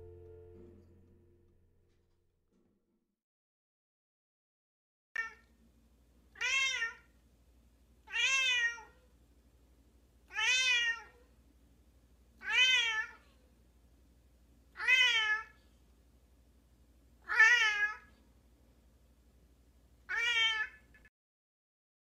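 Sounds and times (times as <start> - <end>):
cat meowing: 6.4 - 7.1, 8.1 - 9.0, 10.3 - 11.2, 12.4 - 13.2, 14.8 - 15.6, 17.2 - 18.1, 20.1 - 21.0.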